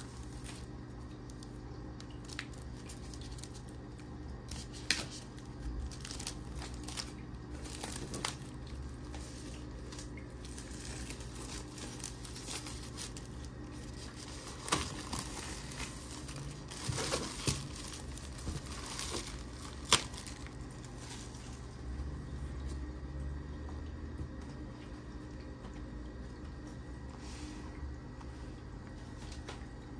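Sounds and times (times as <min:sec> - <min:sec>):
plastic shrink wrap crinkling: 0:00.0 - 0:22.0
low steady hum: 0:00.0 - 0:29.9.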